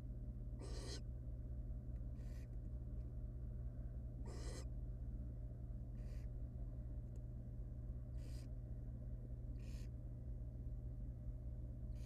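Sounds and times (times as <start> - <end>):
electrical hum: 0.0 - 12.0
owl hissing: 0.6 - 1.1, 2.1 - 2.6, 4.2 - 4.7, 5.9 - 6.4, 8.1 - 8.6, 9.5 - 10.0.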